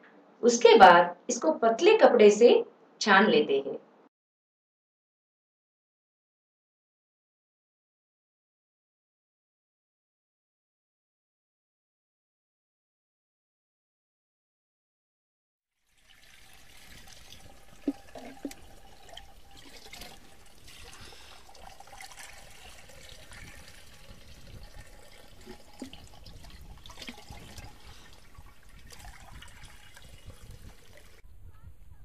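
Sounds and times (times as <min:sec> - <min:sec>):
liquid trickling through cloth: 0:15.9 - 0:31.2.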